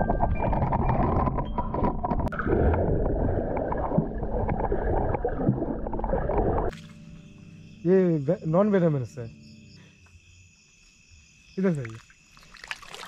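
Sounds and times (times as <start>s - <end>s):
muffled underwater water sloshing: 0.0s - 6.9s.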